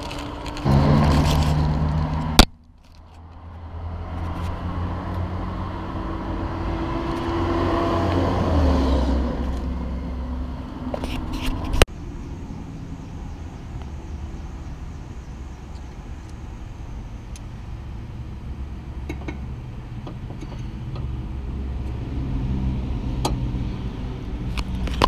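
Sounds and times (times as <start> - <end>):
vehicle engine running: 0.0 - 25.0.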